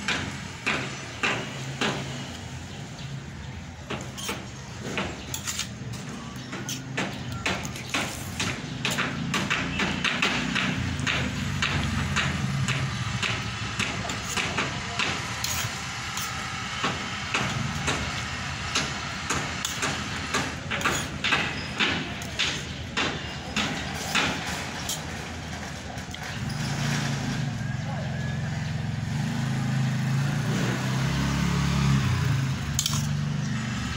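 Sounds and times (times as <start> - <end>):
spoon scraping steel plate: 5.3 - 5.8, 15.4 - 16.4.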